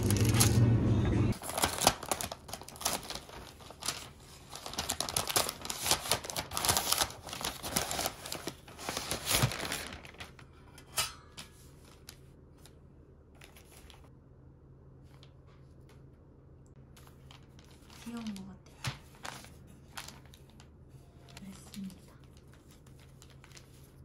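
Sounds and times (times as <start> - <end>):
wrapping paper tearing and crumpling: 0.0 - 0.6, 1.3 - 10.4, 16.9 - 24.0.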